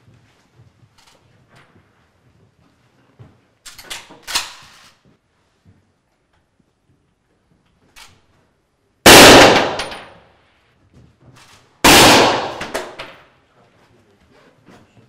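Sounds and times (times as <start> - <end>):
suppressed rifle shots: 9.1 - 10.2, 11.9 - 13.0.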